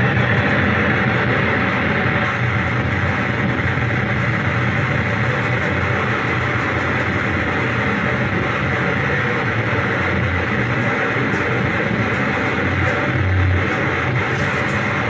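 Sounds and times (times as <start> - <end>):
distorted electronic noise: 0.0 - 15.0.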